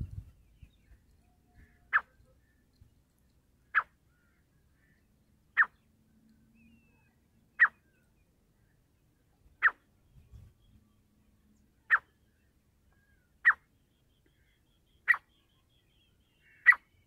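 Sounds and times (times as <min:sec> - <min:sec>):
francolin calling: 0:01.2 - 0:02.7, 0:13.0 - 0:17.0.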